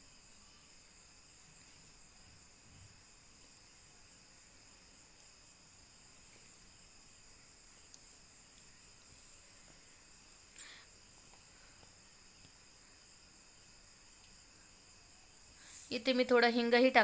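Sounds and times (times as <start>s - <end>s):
faint high-pitched tone: 0.0s - 1.8s.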